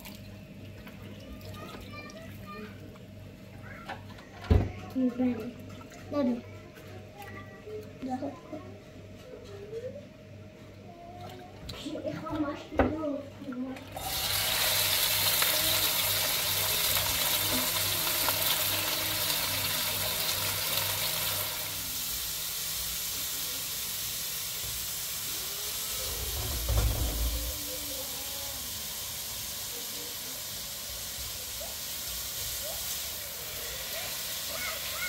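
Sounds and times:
vegetables sizzling in a pan: 13.9s - 35.0s.

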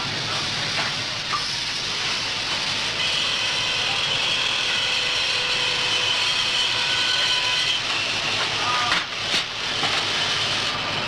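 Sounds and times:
machine hissing and rumbling: 0.0s - 11.0s
steady whining tones: 0.0s - 11.0s.

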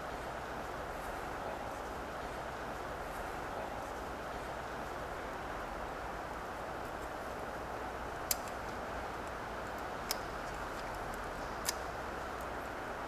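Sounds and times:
low hiss: 0.0s - 13.0s
light metallic clicks: 8.2s - 12.6s.

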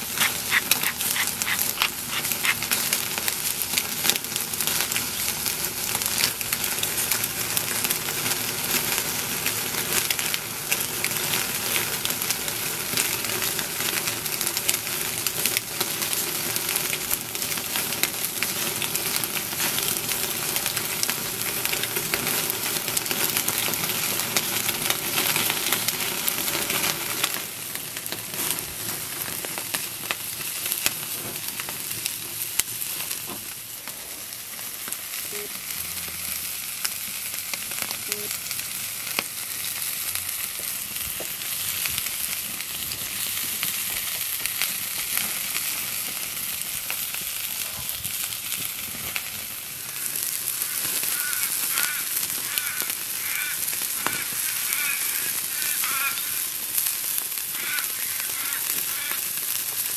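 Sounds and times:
fire popping and crackling: 0.0s - 59.9s
meat sizzling on a grill: 0.0s - 59.9s.

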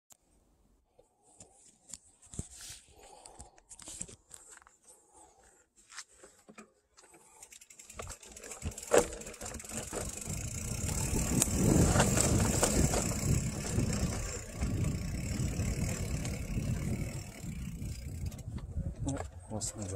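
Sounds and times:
bicycle clicks and rustles: 5.8s - 19.9s
wind and tyre noise: 7.9s - 19.9s.

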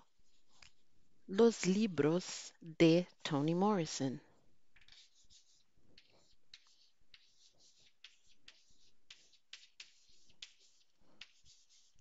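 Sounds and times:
chalk scratching on chalkboard: 4.8s - 12.0s.

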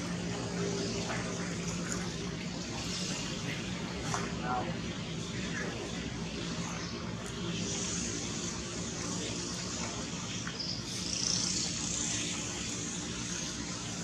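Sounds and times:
steady high hiss: 0.0s - 14.0s
steady low hum: 0.0s - 14.0s
faint chirps: 5.4s - 14.0s.

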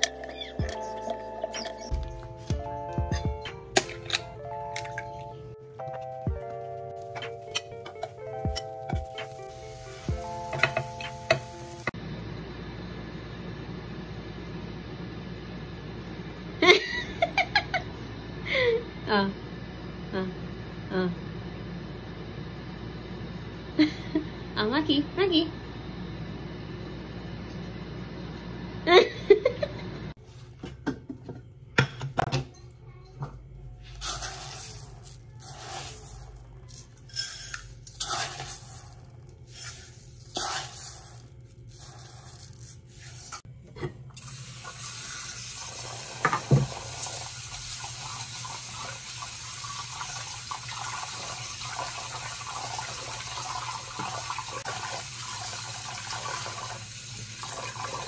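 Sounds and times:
tap water running into pot: 44.2s - 58.0s.

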